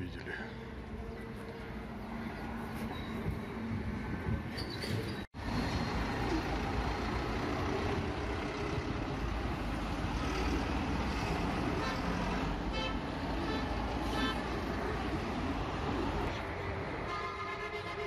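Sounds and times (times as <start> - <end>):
rumble of passing traffic: 0.0 - 18.0.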